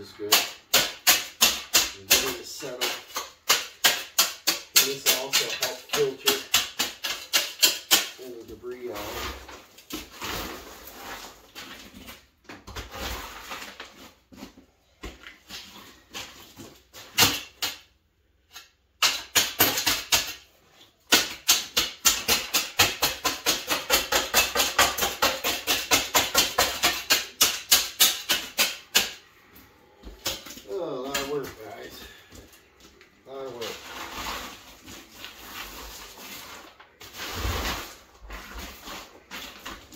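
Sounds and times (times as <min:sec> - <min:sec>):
gravel scraping and crunching: 0:33.3 - 0:39.9.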